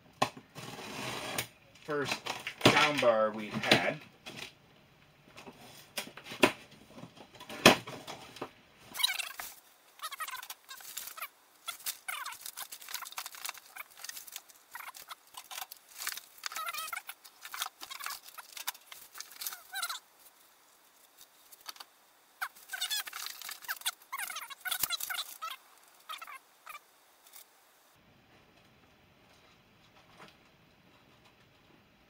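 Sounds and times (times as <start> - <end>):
foam packing squeaking: 0.5 - 4.0, 8.9 - 27.5
plastic wrapping crinkling: 5.6 - 27.6.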